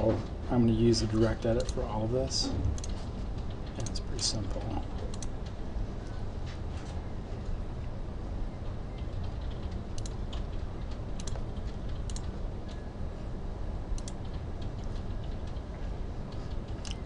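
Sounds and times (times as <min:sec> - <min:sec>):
low background hum: 0:00.0 - 0:17.0
computer mouse clicks: 0:01.6 - 0:01.8, 0:02.8 - 0:04.0, 0:04.6 - 0:05.6, 0:09.0 - 0:12.8, 0:14.0 - 0:15.7, 0:16.3 - 0:17.0.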